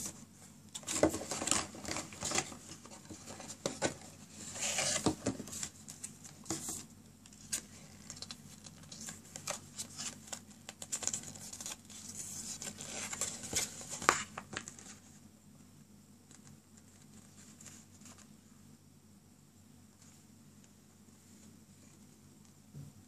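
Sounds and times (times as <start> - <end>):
paper and card rustling: 0.8 - 15.1.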